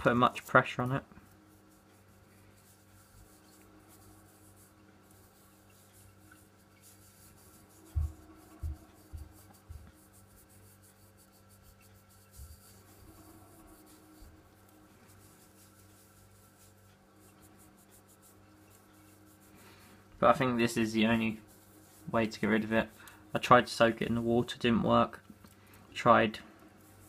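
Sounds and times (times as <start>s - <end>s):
faint dry scrubbing on coin: 0.0s - 27.0s
soft low thumps: 7.8s - 9.9s.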